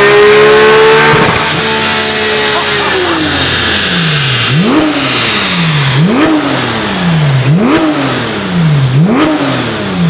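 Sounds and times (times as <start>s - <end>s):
car engine revving: 0.0s - 10.0s.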